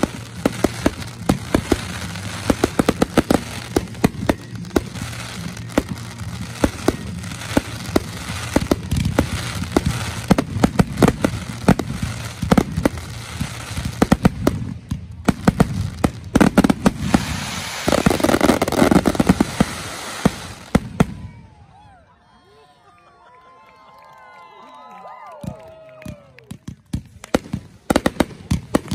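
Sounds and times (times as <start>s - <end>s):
fireworks booming: 0.0s - 21.4s
fireworks crackling: 0.0s - 21.6s, 25.4s - 28.9s.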